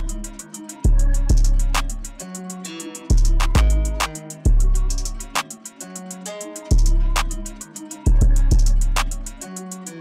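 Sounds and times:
hi-hat ticks: 0.0 - 10.0
snare hits: 1.7 - 2.1, 3.4 - 4.3.

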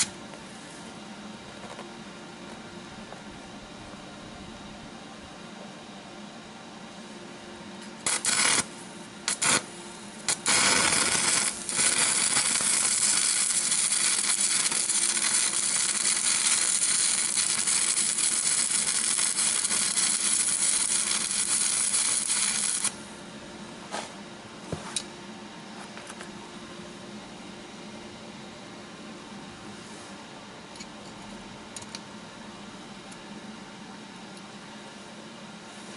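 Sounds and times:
arc welding crackling: 7.8 - 23.0.

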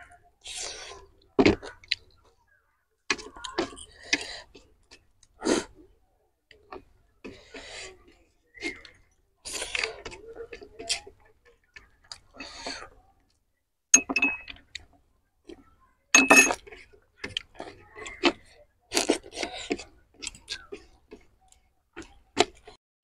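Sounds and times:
chewing and smacking: 0.6 - 2.4, 16.6 - 22.8
metal spoon clinking on plate: 14.0 - 14.5, 16.2 - 16.6.

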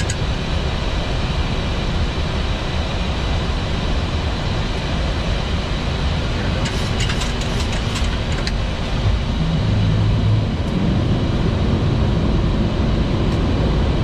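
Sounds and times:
cockpit noise low rumble: 5.5 - 14.0.

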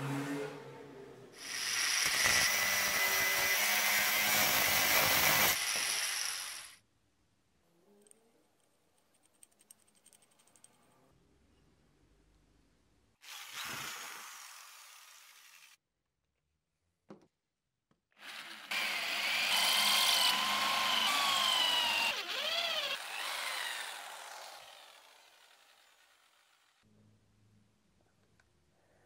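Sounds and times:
faint clicks and handling: 8.0 - 11.0
power tool whining on metal: 18.2 - 26.8.

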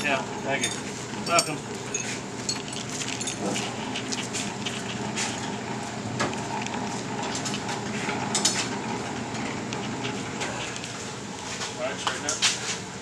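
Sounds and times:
hand tools clinking on metal: 0.0 - 3.7
steady low hum: 0.0 - 13.0.

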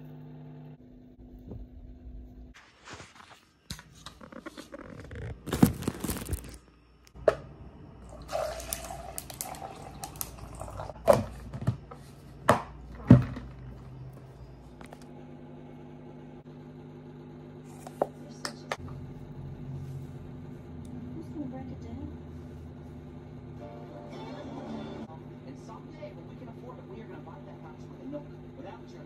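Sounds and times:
liquid pouring into a glass: 8.0 - 11.0.

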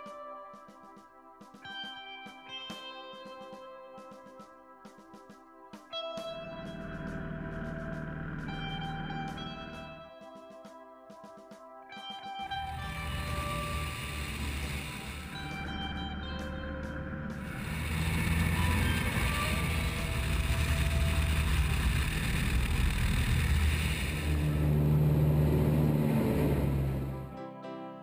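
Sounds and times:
light aircraft engine rumble: 12.5 - 27.3.

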